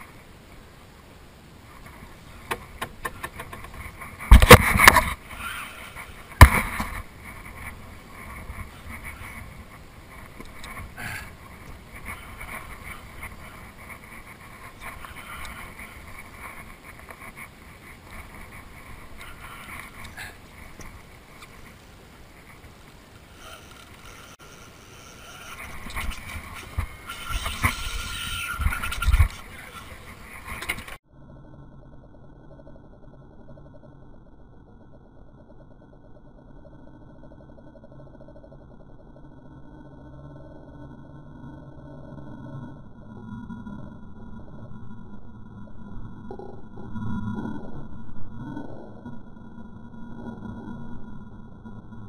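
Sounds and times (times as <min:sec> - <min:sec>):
wind: 0:00.0 - 0:52.0
fishing reel ticking: 0:23.3 - 0:30.9.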